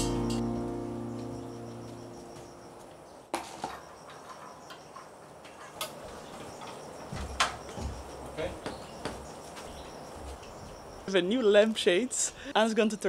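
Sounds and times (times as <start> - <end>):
background music: 0.0 - 2.3.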